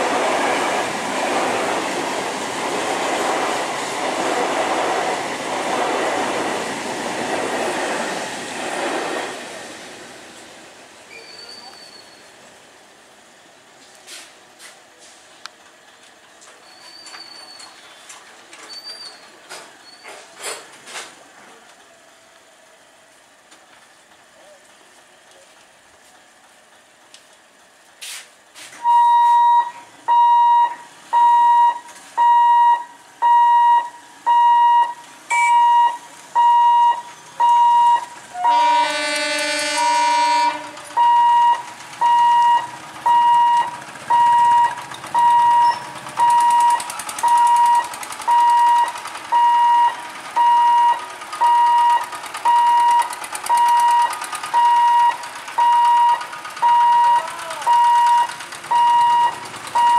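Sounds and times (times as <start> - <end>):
vehicle engines: 0.0 - 59.9
level crossing buzzer beeping: 28.8 - 38.7, 41.0 - 59.9
vehicle horn: 38.3 - 40.9.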